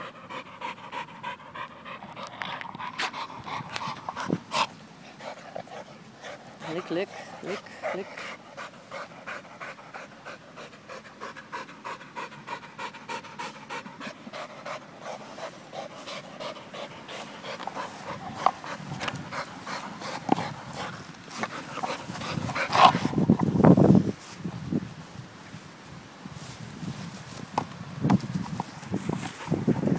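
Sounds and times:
dog panting hard: 0.0 - 23.6.

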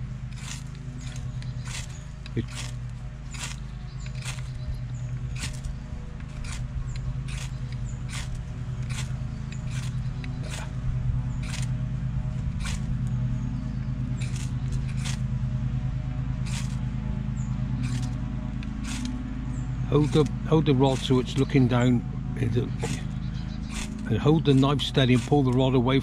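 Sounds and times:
steady low hum: 0.0 - 26.0
knife scraping ferrocerium rod: 0.3 - 10.8, 11.4 - 11.8, 12.6 - 12.9, 14.2 - 15.2, 16.5 - 16.8, 17.8 - 19.2, 22.8 - 25.6.

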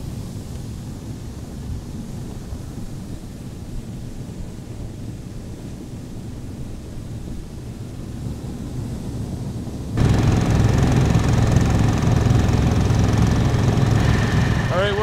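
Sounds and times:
motor sled engine running: 9.7 - 15.0.

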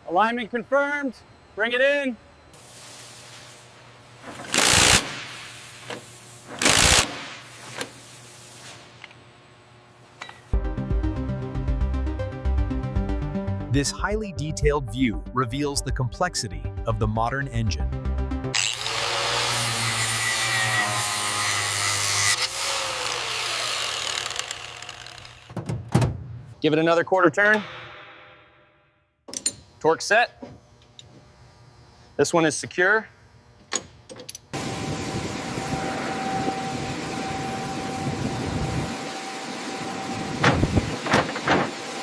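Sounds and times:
electric polisher whirring: 18.6 - 20.2, 21.2 - 25.5.

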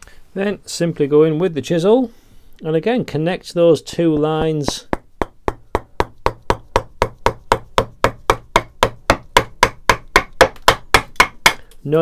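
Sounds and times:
mallet striking wood chisel: 4.4 - 11.6.

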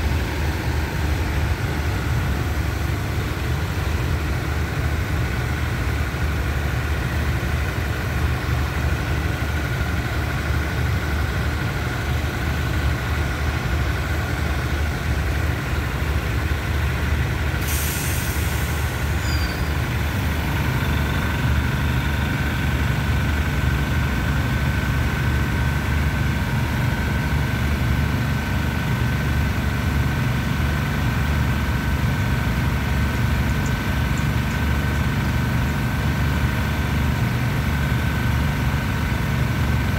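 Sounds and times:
diesel train engines idling: 0.0 - 39.9
short hiss: 17.6 - 19.7.

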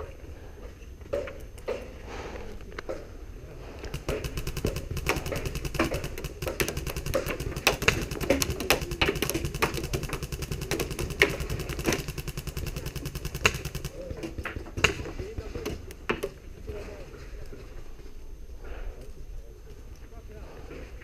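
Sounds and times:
replica guns automatic fire: 3.8 - 15.9.

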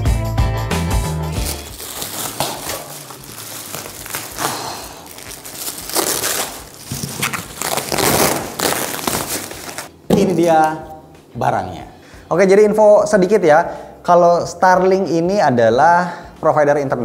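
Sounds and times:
packaging crinkling and rustling: 1.4 - 10.7.

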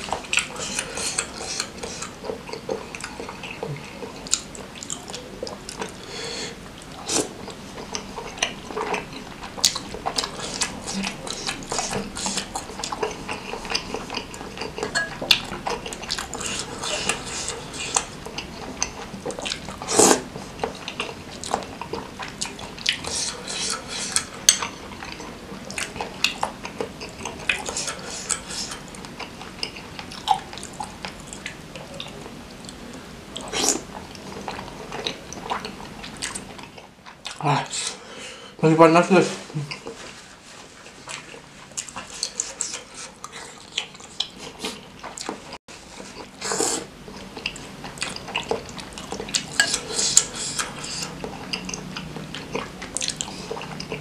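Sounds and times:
noodles slurped and chewed: 0.0 - 38.4, 39.3 - 54.0
fork clinking against glass bowl: 14.9 - 15.2.

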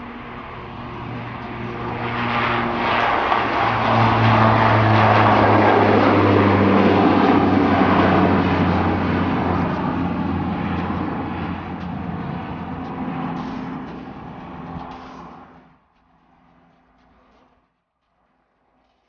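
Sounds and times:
turboprop airliner taking off: 0.0 - 17.5.

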